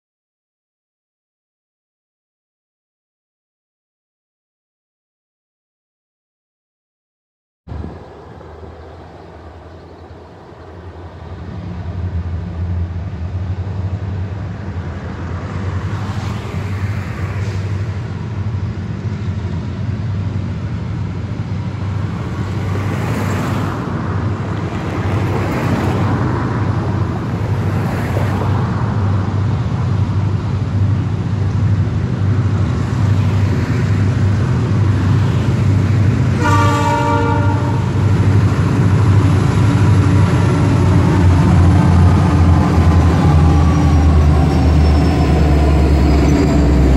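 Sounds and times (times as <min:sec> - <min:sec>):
diesel locomotive engine rumble: 0:07.7 - 0:46.9
cars whooshing past: 0:12.1 - 0:18.7, 0:21.9 - 0:29.6, 0:32.4 - 0:46.9
locomotive horn blast: 0:36.3 - 0:38.2.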